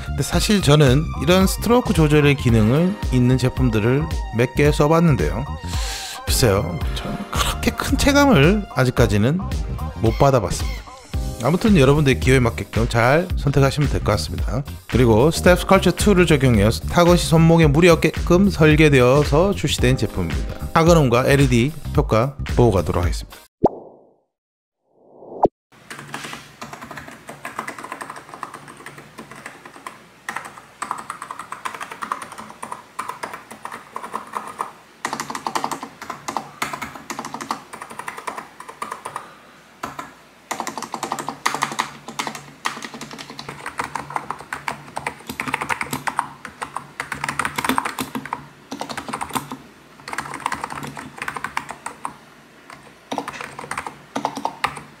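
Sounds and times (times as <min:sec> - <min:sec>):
fast keyboard typing: 0:25.8 - 0:55.0.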